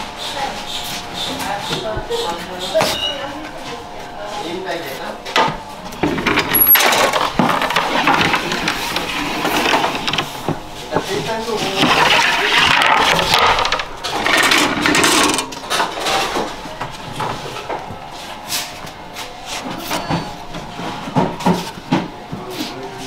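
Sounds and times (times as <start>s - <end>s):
peel scraping oven floor: 5.9s - 16.6s.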